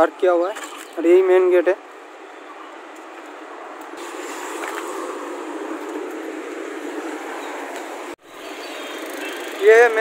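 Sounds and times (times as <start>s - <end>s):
motorcycles passing: 3.9s - 10.0s.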